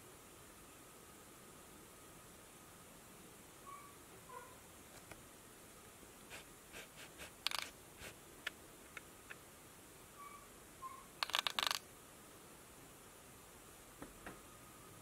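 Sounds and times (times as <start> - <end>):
cat chirping: 3.6 - 4.6, 10.2 - 11.8.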